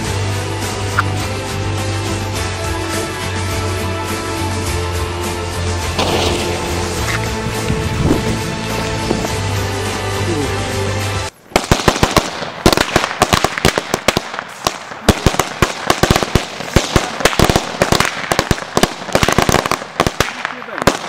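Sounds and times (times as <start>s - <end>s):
background music: 0.0s - 11.4s
firecrackers banging: 5.7s - 10.0s, 11.3s - 21.0s.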